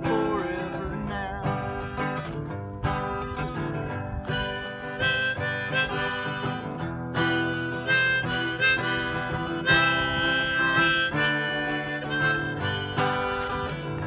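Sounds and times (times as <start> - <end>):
strummed acoustic guitar: 0.0 - 14.0
harmonica playing: 4.2 - 14.0.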